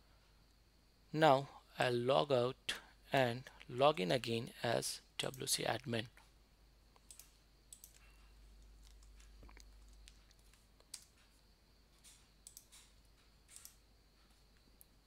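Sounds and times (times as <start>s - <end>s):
computer mouse and keyboard clicks: 7.0s - 11.4s, 12.0s - 14.4s.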